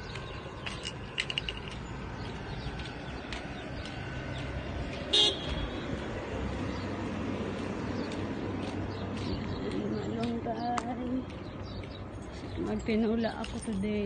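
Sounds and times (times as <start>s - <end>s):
street background noise: 0.0s - 14.0s
short vehicle horn toot: 5.1s - 5.6s.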